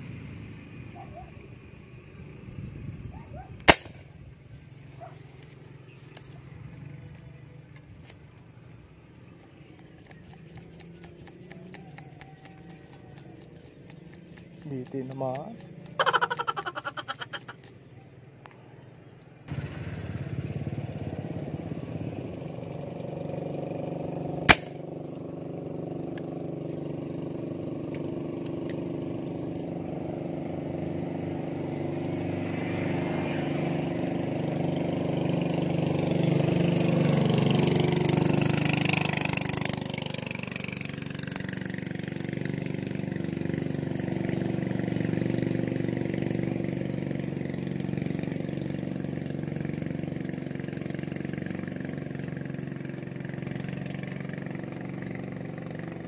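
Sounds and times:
motorboat engine passing: 0:03.1 - 0:56.0.

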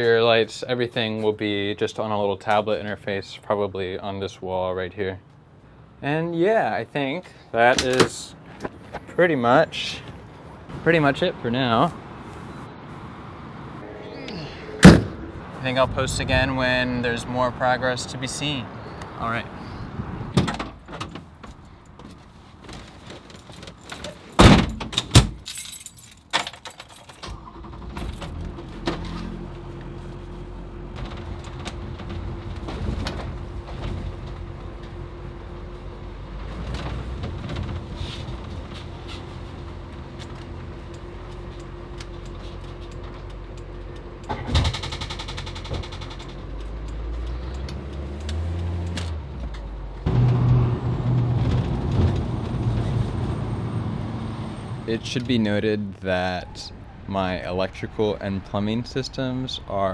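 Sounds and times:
road noise: 0:00.0 - 0:59.9
truck engine droning: 0:13.1 - 0:18.0, 0:45.9 - 0:55.6.

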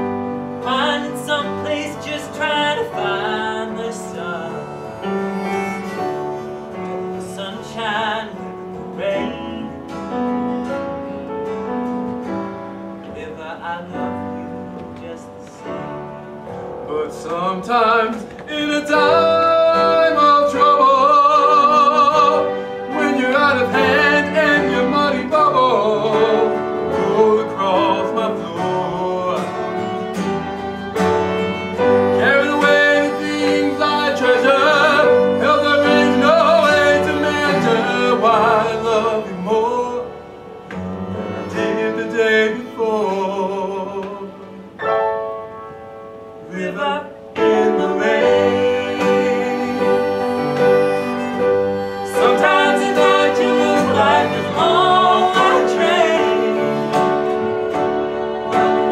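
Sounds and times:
instrumental accompaniment: 0:00.0 - 0:58.9
men singing a ballad duet: 0:00.6 - 0:05.0, 0:16.9 - 0:30.0, 0:32.0 - 0:40.2, 0:46.5 - 0:57.6.

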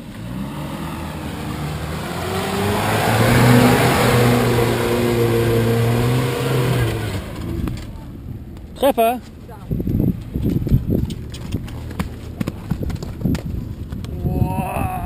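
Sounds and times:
engine pulling hard under load: 0:00.0 - 0:08.0.

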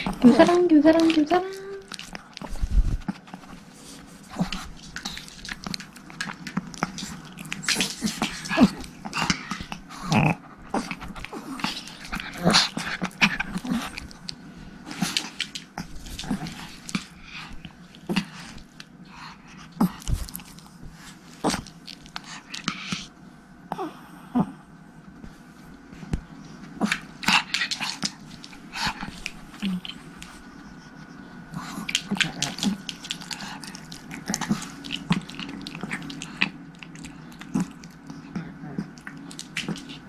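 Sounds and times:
small dogs growling: 0:04.2 - 0:20.4, 0:23.7 - 0:24.7, 0:26.7 - 0:40.0.

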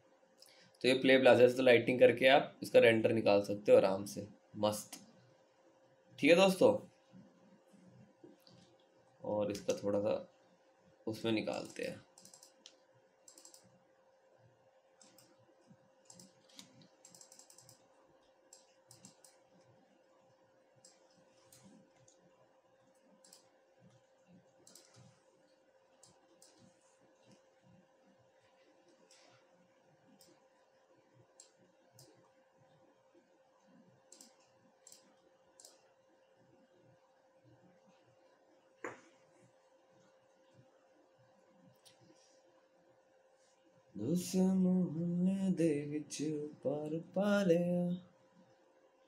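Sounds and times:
faint steady hum: 0:00.0 - 0:49.0
computer keyboard and mouse clicking: 0:11.5 - 0:13.8, 0:15.0 - 0:27.8, 0:30.1 - 0:30.6, 0:31.3 - 0:32.8, 0:33.6 - 0:35.9.

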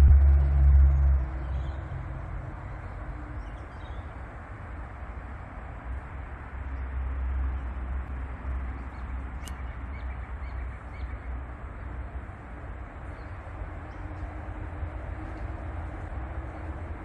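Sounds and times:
outdoor rumble and hiss: 0:00.0 - 0:17.0
sharp tick: 0:09.4 - 0:09.7.

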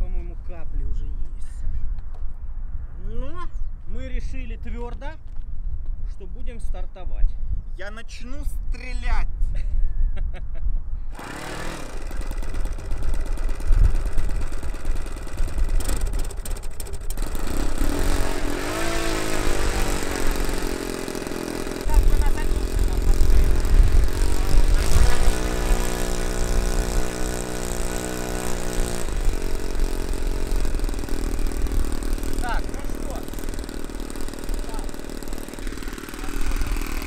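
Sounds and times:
wind rumbling on microphone: 0:00.0 - 0:11.1, 0:21.9 - 0:25.5
model airplane engine running: 0:11.1 - 0:37.0.

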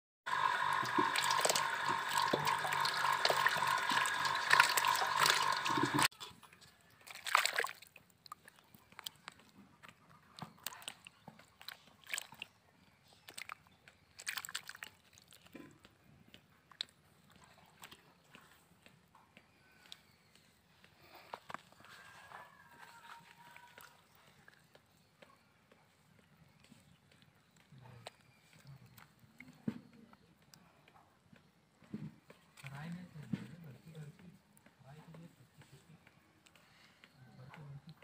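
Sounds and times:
faint water splashes: 0:00.3 - 0:09.4, 0:10.4 - 0:12.6, 0:13.2 - 0:15.6, 0:21.8 - 0:24.7.

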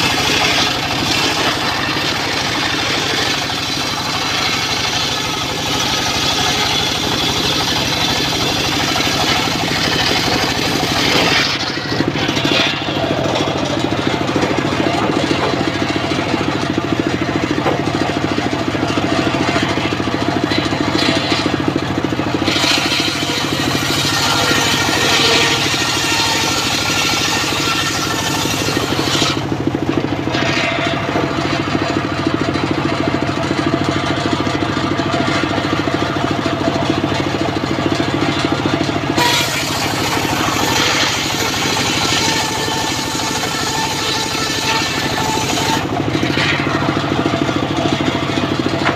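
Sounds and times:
saw blade ripping board: 0:00.0 - 0:32.0, 0:38.2 - 0:48.9
saw bench engine running: 0:00.0 - 0:48.9.

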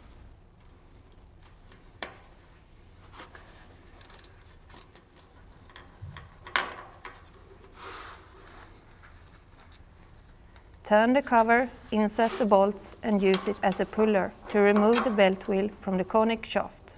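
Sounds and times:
metallic clicks of tool and bolts: 0:13.2 - 0:13.8, 0:14.4 - 0:15.7.

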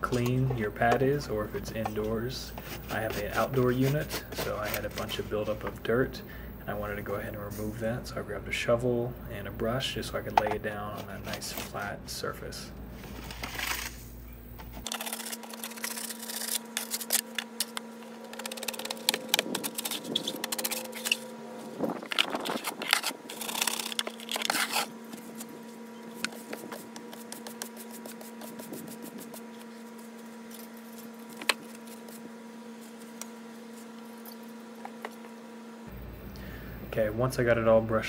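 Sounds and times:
steady hum: 0:00.0 - 0:38.0
shovel scraping dirt: 0:02.0 - 0:05.7, 0:21.8 - 0:25.6.

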